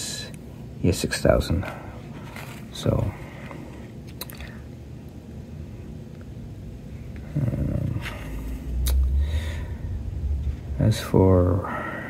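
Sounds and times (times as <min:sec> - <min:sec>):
low rumbling handling noise: 0:07.1 - 0:11.7.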